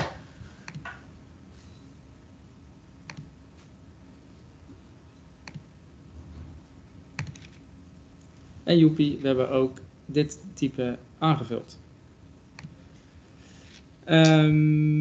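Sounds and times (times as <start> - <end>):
faint low room hum: 0.0 - 15.0
computer mouse clicks: 0.7 - 1.0, 3.0 - 3.3, 5.4 - 5.7, 7.2 - 7.6, 12.6 - 12.8.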